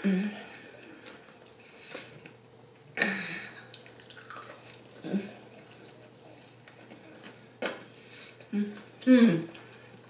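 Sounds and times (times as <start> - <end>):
wet chewing and mouth sounds: 3.6 - 10.0.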